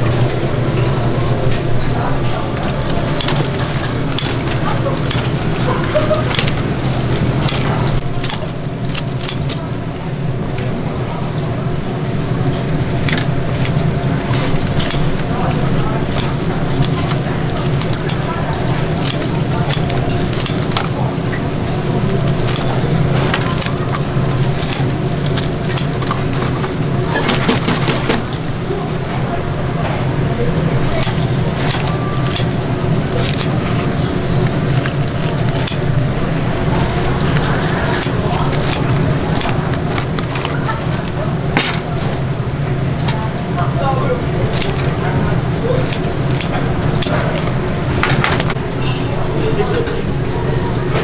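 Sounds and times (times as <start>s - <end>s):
deep fryer sizzling: 0.0s - 51.0s
scissors snipping fried ribs: 3.2s - 9.7s, 13.0s - 21.0s, 22.1s - 28.2s, 30.9s - 41.2s, 44.4s - 45.0s, 45.7s - 47.5s.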